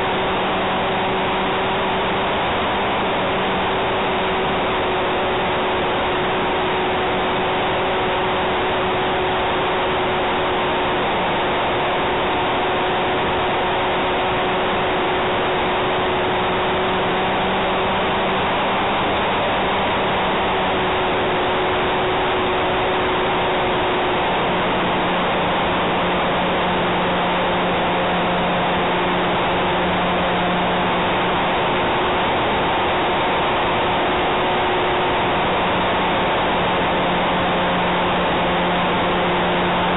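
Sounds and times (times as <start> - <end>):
model plane motor whine: 0.0 - 39.9.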